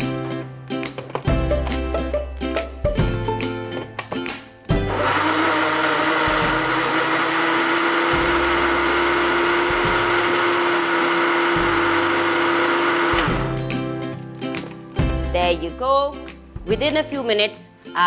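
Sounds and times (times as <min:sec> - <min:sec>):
blender motor whining: 0:04.8 - 0:13.6.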